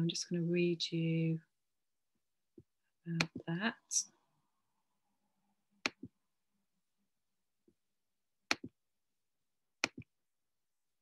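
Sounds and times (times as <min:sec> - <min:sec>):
computer mouse clicking: 0:08.5 - 0:08.8, 0:09.8 - 0:10.1.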